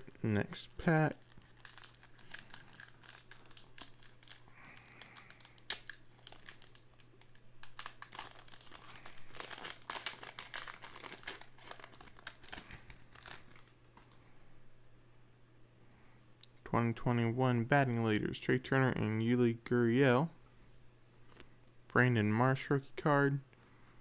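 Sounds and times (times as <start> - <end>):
wrapper crinkling and tearing: 0.6 - 14.2.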